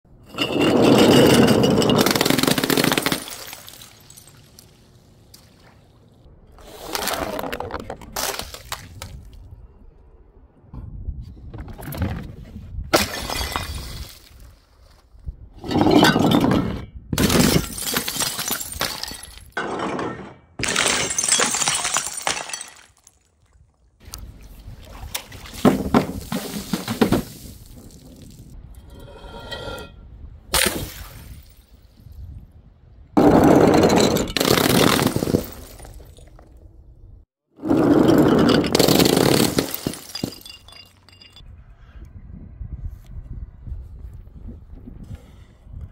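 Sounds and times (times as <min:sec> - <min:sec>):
glass breaking and crunching: 0:01.2 - 0:04.5, 0:17.2 - 0:23.2, 0:38.5 - 0:41.4
glass smashing with splash: 0:01.8 - 0:04.5, 0:13.0 - 0:14.3, 0:20.6 - 0:23.2, 0:38.8 - 0:41.4
splashes and sharp hits: 0:02.0 - 0:05.8, 0:08.1 - 0:09.3, 0:12.9 - 0:14.4, 0:24.0 - 0:28.2, 0:30.5 - 0:31.7.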